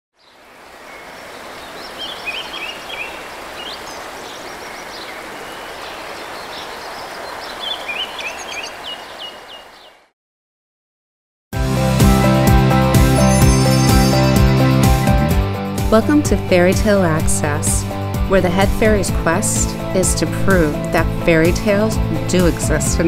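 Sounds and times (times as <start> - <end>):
small birds chirping: 0.2 - 10.1.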